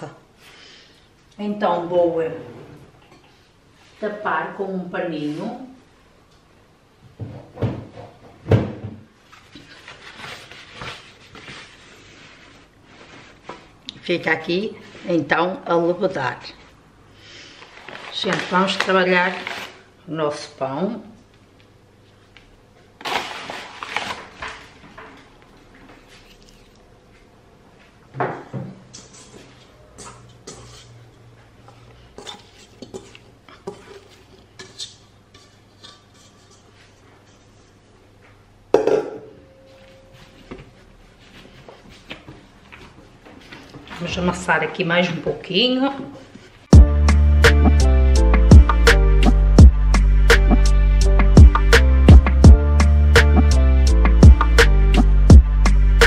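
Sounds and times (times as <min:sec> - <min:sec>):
kitchen cabinet knocks: 0:07.2 - 0:09.0
tea towel rustling: 0:09.2 - 0:13.8
dough scraping out of bowl: 0:29.0 - 0:31.0.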